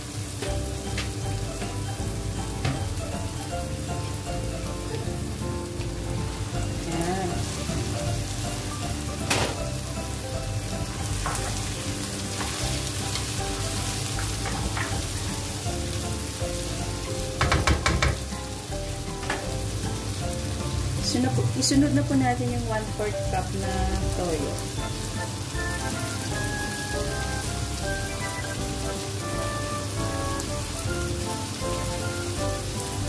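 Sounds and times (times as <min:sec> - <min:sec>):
squid frying in hot oil: 0:00.0 - 0:33.0
spatula knocking against pan: 0:17.4 - 0:18.3.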